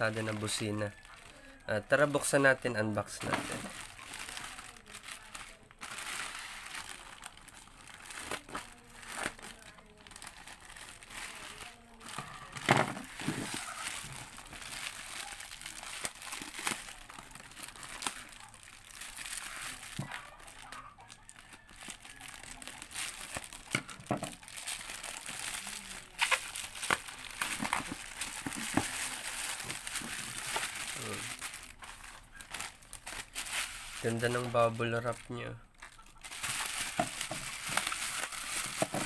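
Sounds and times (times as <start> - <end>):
plastic pouch crinkling: 0.0 - 39.0
scissors cutting plastic: 3.1 - 18.4, 21.6 - 34.6, 36.3 - 39.0.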